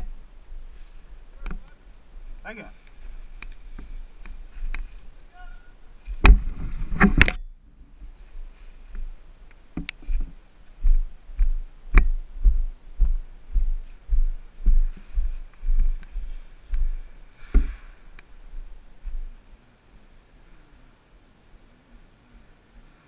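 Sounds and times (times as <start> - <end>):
footsteps on dirt trail: 0.5 - 7.2, 8.0 - 19.4.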